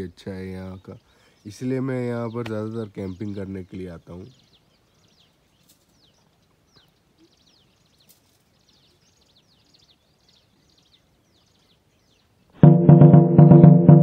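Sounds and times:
faint birdsong chirps: 0.0 - 12.6
loud music with steady beat: 12.6 - 14.0.

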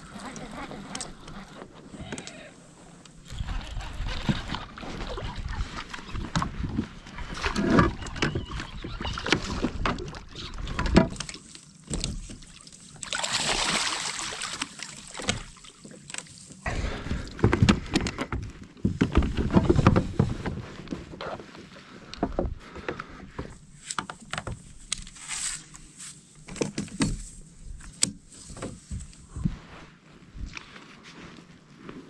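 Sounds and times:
water splashing: 7.2 - 16.6.

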